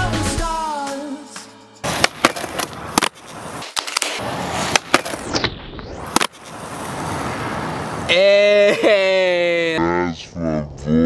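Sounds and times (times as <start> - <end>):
skateboard popping and landing: 1.8 - 8.1
skateboard wheels rolling on concrete: 1.8 - 9.8.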